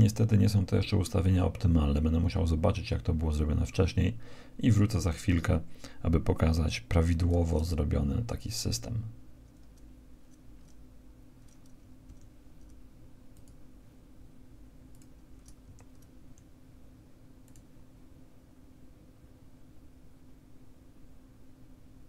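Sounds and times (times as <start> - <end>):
low electrical hum: 0.0 - 22.0
computer mouse and keyboard clicks: 9.5 - 10.8, 11.4 - 13.6, 14.9 - 16.5.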